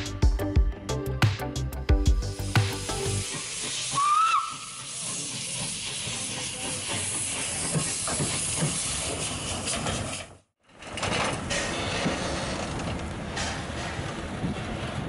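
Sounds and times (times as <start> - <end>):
steam locomotive venting steam: 2.2 - 10.6.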